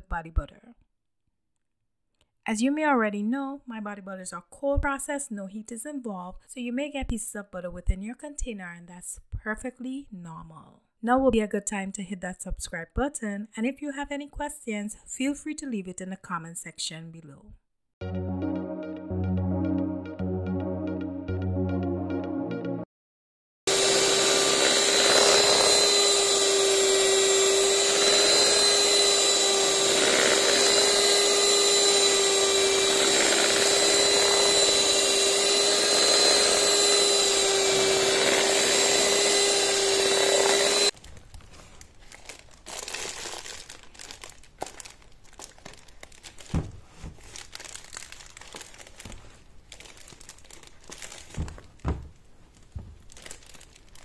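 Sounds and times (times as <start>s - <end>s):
electric hand mixer whirring: 23.7s - 41.0s
plastic rustling: 40.9s - 54.0s.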